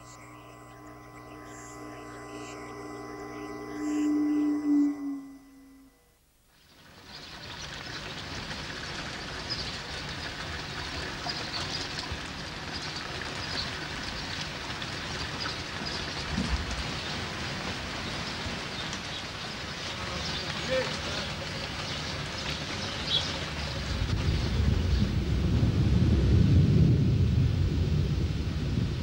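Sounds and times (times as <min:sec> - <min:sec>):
rain pattering on street and roofs: 0:06.7 - 0:29.0.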